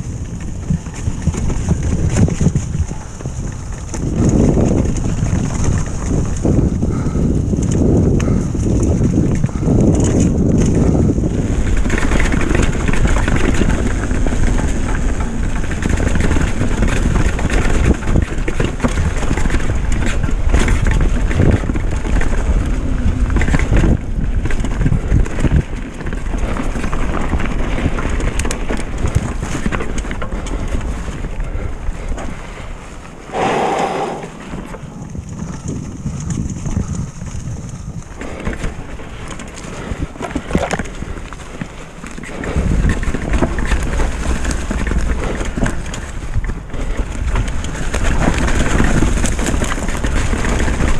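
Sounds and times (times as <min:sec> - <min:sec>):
bike knocking and rattling: 0:00.0 - 0:33.7, 0:34.3 - 0:50.9
bike tyres rolling over dirt and leaves: 0:00.0 - 0:50.9
wind on microphone: 0:00.0 - 0:50.9.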